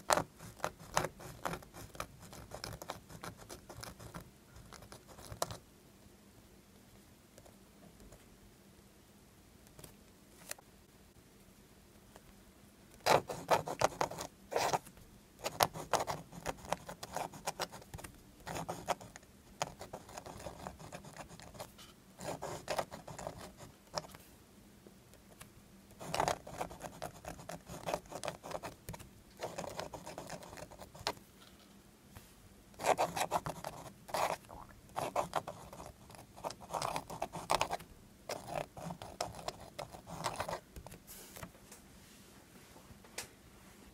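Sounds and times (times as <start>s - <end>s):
fountain pen scratching paper: 0.0s - 5.6s, 13.0s - 24.2s, 26.0s - 31.2s, 32.8s - 41.0s.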